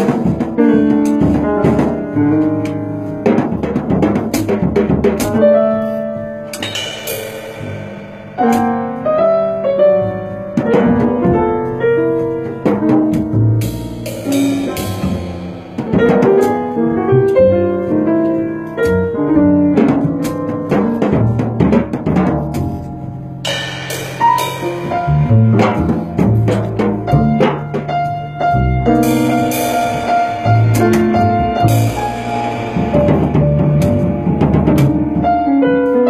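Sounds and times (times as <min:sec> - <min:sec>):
jazz group playing: 0:00.0 - 0:36.0
piano: 0:00.0 - 0:36.0.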